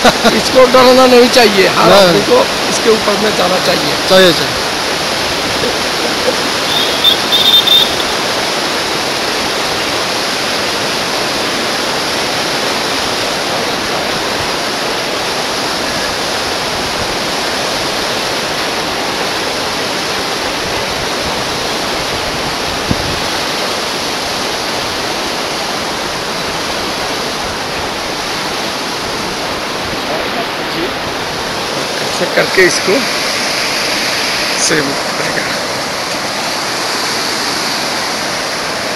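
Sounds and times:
river rushing: 0.0 - 38.9
short high-pitched sounds: 6.6 - 8.2.

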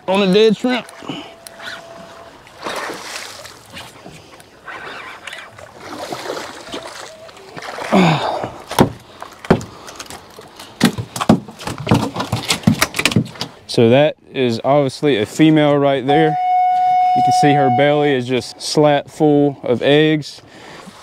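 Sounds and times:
fish flopping on boat deck: 0.8 - 13.4.

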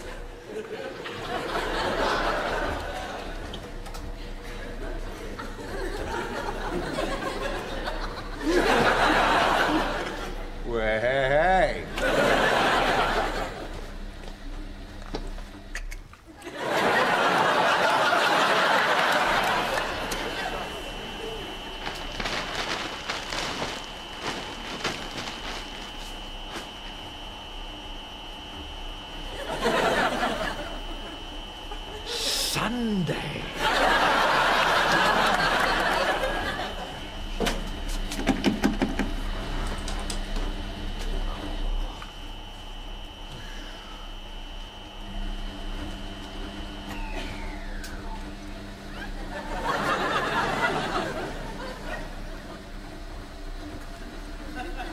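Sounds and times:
audience laughing: 0.0 - 10.6, 11.7 - 14.3, 16.3 - 26.8, 29.1 - 42.0, 48.8 - 54.9
faint steady hum: 0.0 - 54.9
low murmur: 0.0 - 54.9.

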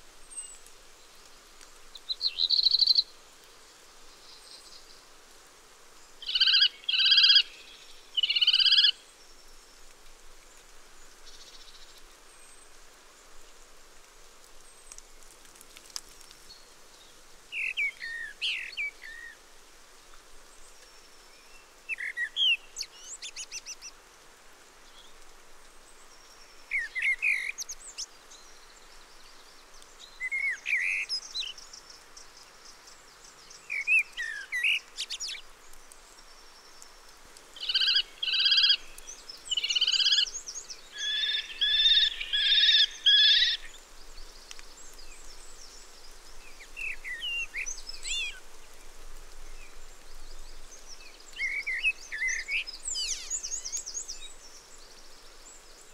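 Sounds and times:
kestrels calling: 6.2 - 7.6, 8.2 - 9.0, 37.6 - 43.8.

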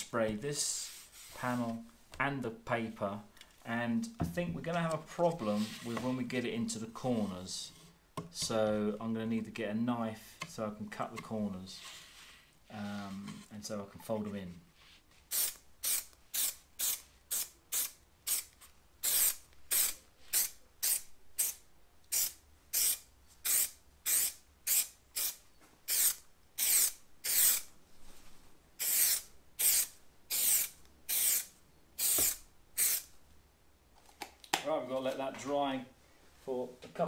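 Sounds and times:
aerosol can hissing: 28.8 - 33.1.

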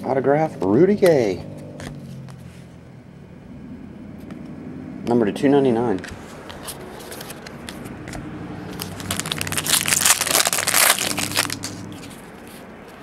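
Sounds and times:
foil wrapper crinkling and tearing: 8.7 - 11.9.

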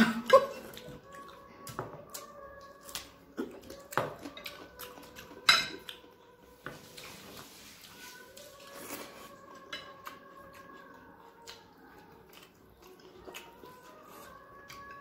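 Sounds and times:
food mixing and scraping: 3.4 - 10.4.

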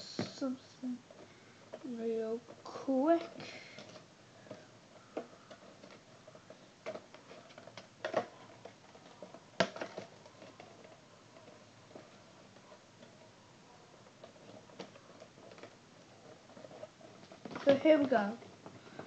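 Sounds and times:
cardboard box clicks and crinkles: 3.2 - 13.3.

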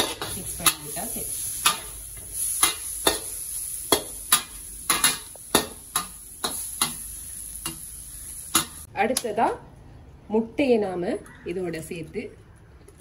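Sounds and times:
frying sizzle: 0.0 - 8.9.

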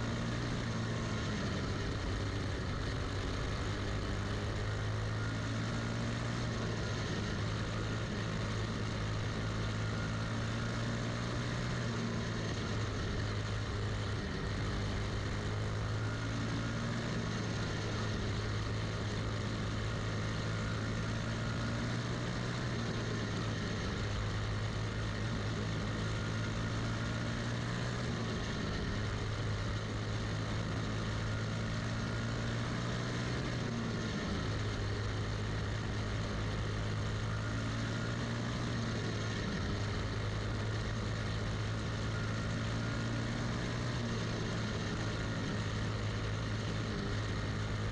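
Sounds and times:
racing engine at high revs: 0.0 - 47.9.

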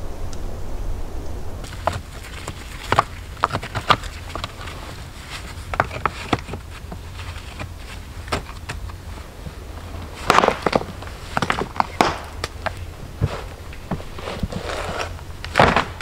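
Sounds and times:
low rumble: 0.0 - 3.4.

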